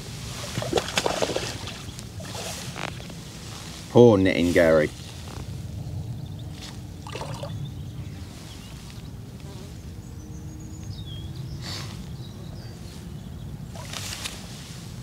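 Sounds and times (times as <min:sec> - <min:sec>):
steady low rumble: 0:00.0 - 0:09.4
fish splashing in water: 0:00.4 - 0:03.1, 0:07.0 - 0:07.5.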